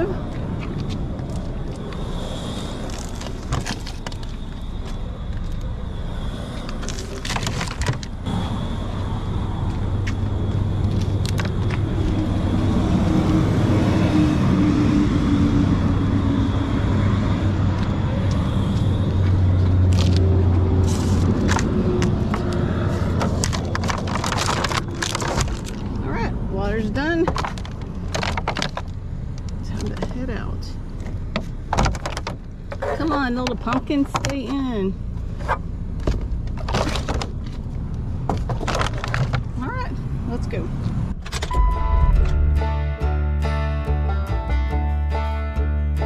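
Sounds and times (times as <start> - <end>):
knocks and clatter of handling: 27.2 - 29.0, 31.0 - 32.4, 38.2 - 39.5
vehicle engine running: 40.9 - 46.0.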